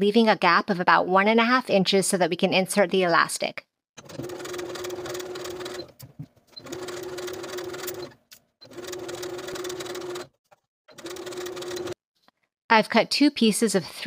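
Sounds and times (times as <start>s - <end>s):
electric sewing machine stitching: 4.0s - 12.0s.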